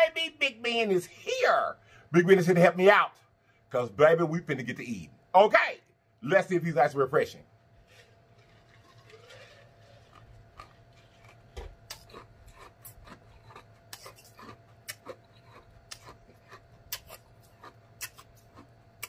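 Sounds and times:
man drinking: 7.9s - 13.2s
lip smacks and mouth clicks: 10.1s - 19.0s.

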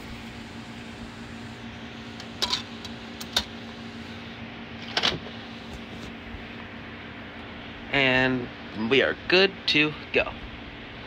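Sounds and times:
steady low hum: 0.0s - 11.0s
disc drive clicks: 2.2s - 3.6s.

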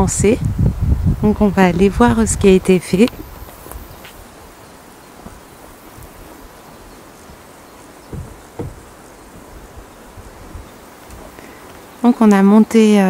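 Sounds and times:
insects buzzing: 0.6s - 13.0s
dull thumps: 5.2s - 6.3s, 7.2s - 11.9s.

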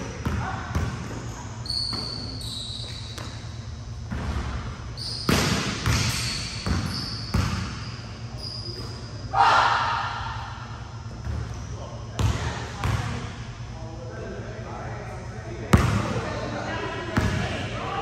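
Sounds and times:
basketball bouncing: 0.2s - 1.1s, 5.3s - 7.8s, 12.2s - 13.2s, 15.7s - 16.1s
shoe squeaks: 1.2s - 3.6s, 4.9s - 9.3s.

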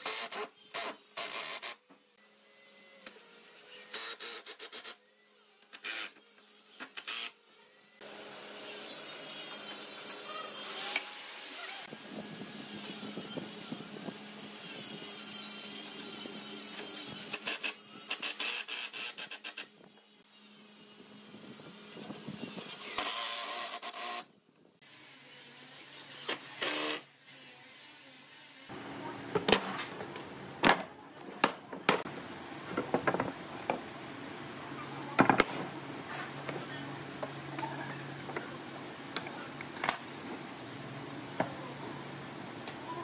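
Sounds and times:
boards knocking on workbench: 32.7s - 33.8s.

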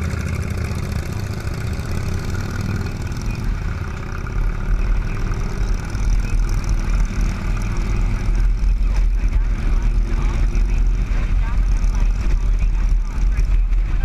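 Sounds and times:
motorcycle engines running: 0.0s - 14.0s.

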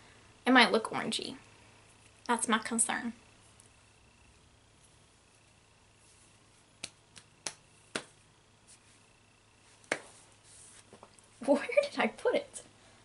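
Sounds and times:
hair tie snapping: 6.8s - 8.2s.

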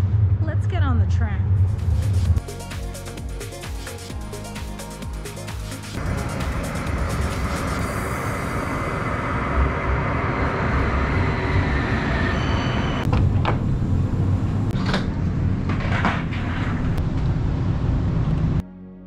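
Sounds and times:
tram low rumble: 0.0s - 2.4s, 5.9s - 18.6s.

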